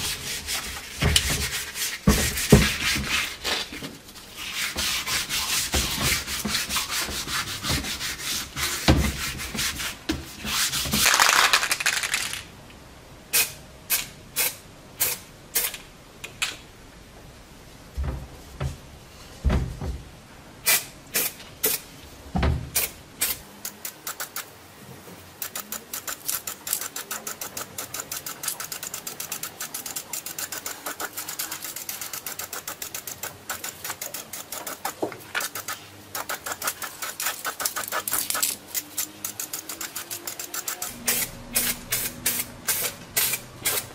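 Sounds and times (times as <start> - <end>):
sandpaper rubbing on steel: 0.0 - 11.1, 25.4 - 43.9
spray paint can shaken: 11.0 - 12.5, 25.4 - 43.9.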